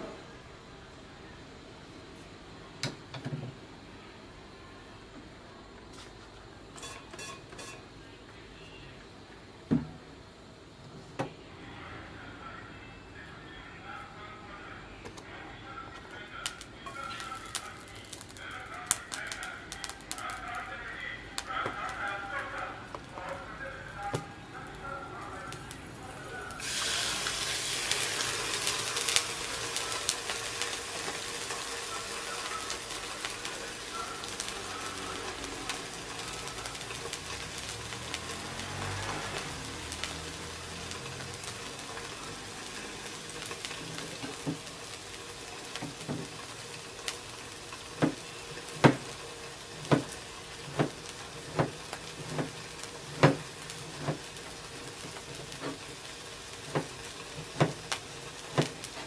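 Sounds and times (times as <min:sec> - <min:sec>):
fish fillet sizzling in a frying pan: 0:16.5 - 0:21.0, 0:25.4 - 0:59.0.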